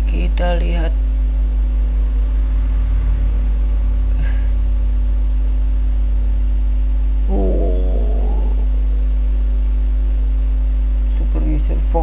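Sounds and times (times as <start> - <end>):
loud low electrical hum: 0.0 - 12.0
faint brief sound: 7.3 - 8.8.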